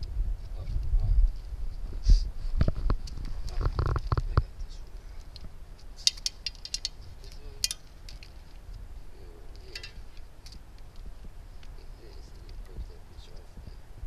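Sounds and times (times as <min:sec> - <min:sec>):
steady low rumble: 0:00.0 - 0:14.0
metal parts clinking: 0:06.0 - 0:08.4.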